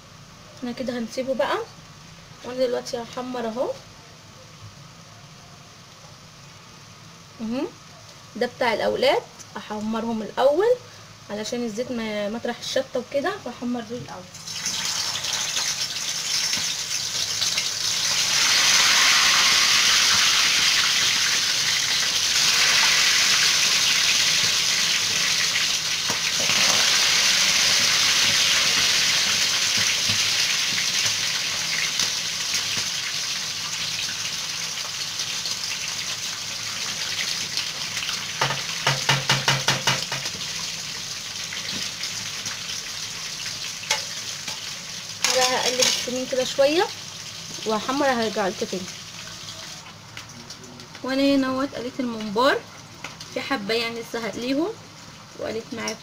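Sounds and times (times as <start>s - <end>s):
food sizzling in hot oil: 5.7s - 56.0s.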